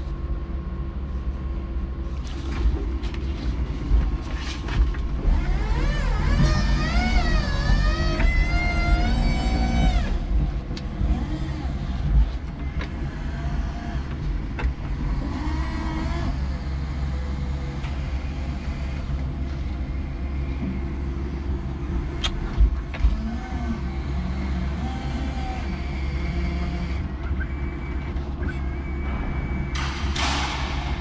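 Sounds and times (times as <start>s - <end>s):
low engine rumble: 0.0s - 31.0s
electric motor whine: 5.2s - 19.2s, 22.8s - 27.7s.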